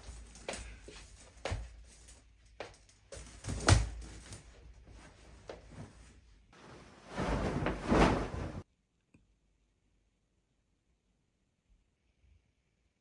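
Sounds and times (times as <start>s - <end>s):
duvet rustling whoosh: 4.9s - 8.6s
bedding thump: 6.6s - 8.6s.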